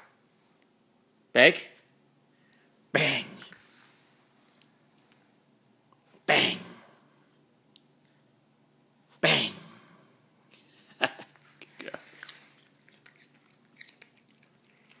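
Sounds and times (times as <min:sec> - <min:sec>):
dog sneezing: 0:03.0 - 0:03.6, 0:06.2 - 0:06.8, 0:09.1 - 0:09.8.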